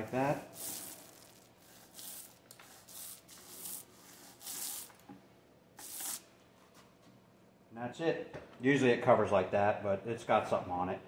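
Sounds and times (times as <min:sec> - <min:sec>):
paint roller rubbing strokes: 0:00.0 - 0:05.0, 0:05.8 - 0:06.3.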